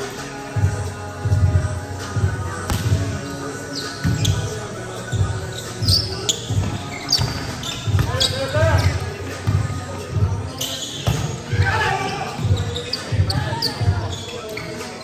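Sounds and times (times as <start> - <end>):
background music: 0.0 - 15.0
volleyball bouncing and hit: 2.7 - 3.2
shoe squeaks: 3.2 - 9.2, 10.3 - 15.0.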